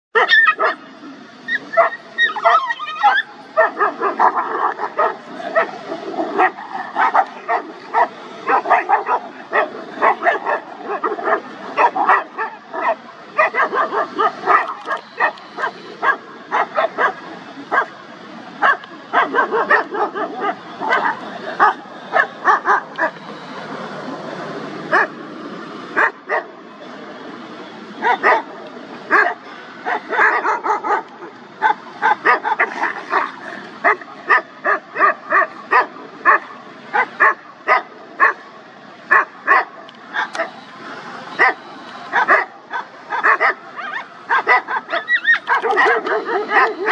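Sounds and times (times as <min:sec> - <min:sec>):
dogs barking: 0:00.2 - 0:00.9, 0:01.5 - 0:18.0, 0:18.6 - 0:23.3, 0:24.8 - 0:25.2, 0:26.0 - 0:26.6, 0:28.0 - 0:38.5, 0:39.1 - 0:40.6, 0:41.3 - 0:46.9.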